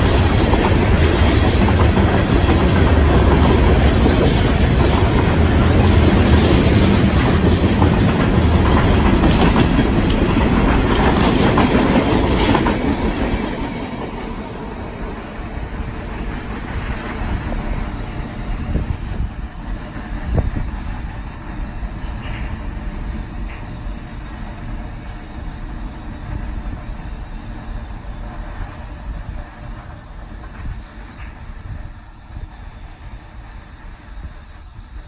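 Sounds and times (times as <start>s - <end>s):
distant train rumble: 0.0s - 35.0s
freight train wheels clacking: 0.0s - 35.0s.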